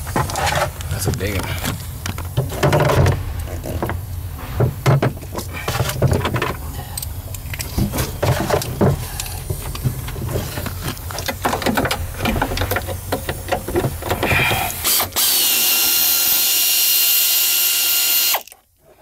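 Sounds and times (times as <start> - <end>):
steady low hum: 0.0 - 15.2
parts and tools clicking and rattling: 0.0 - 16.0.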